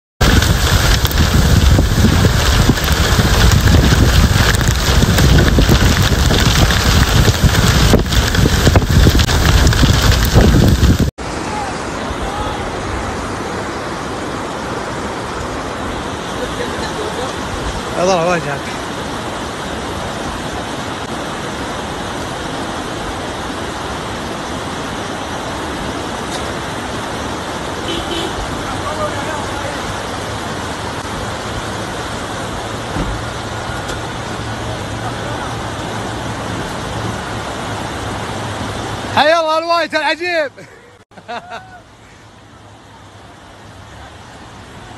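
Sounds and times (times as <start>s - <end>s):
wind buffeting microphone: 0.2s - 11.1s
flood water rushing across road: 0.2s - 44.9s.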